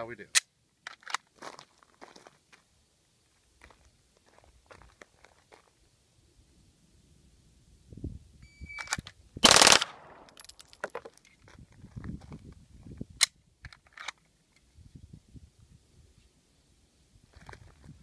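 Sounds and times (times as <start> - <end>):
footsteps on gravel: 1.3 - 2.7, 3.3 - 5.8
automatic pistol burst: 8.9 - 10.4.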